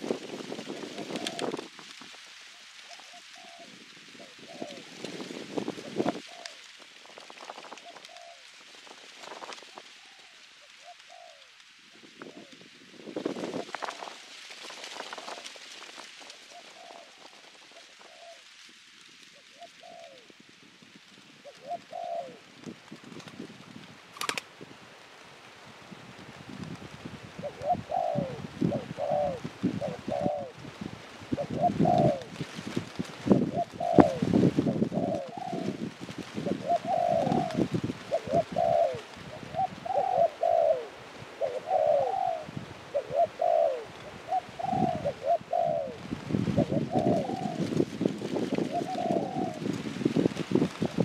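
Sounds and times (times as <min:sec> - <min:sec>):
dove cooing: 0:00.8 - 0:01.6, 0:02.8 - 0:05.2, 0:05.8 - 0:06.7, 0:07.7 - 0:08.5, 0:09.7 - 0:12.6, 0:16.4 - 0:18.5, 0:19.3 - 0:20.3, 0:21.4 - 0:22.5, 0:27.4 - 0:30.6, 0:31.3 - 0:49.9
rattle of sharp clicks: 0:24.2 - 0:24.5.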